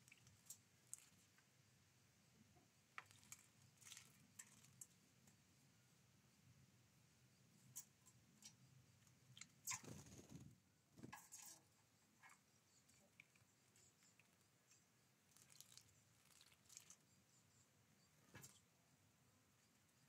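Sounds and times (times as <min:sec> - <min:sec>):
birds pecking at seeds: 0:00.0 - 0:01.5, 0:03.0 - 0:05.1, 0:07.6 - 0:17.2.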